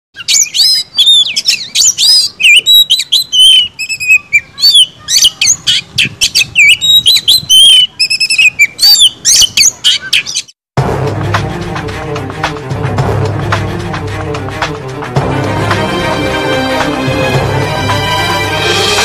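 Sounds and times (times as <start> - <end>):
magpie-robin singing: 0.2 - 10.6.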